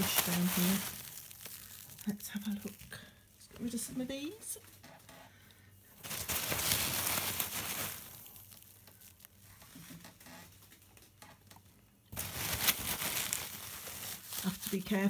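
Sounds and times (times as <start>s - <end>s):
packing peanuts and bubble wrap rustling: 0.0s - 4.6s, 6.0s - 9.9s, 12.1s - 15.0s.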